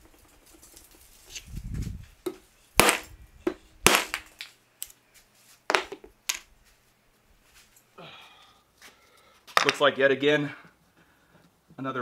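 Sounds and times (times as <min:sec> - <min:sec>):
mallet cracking wood block: 0:02.3 - 0:04.5.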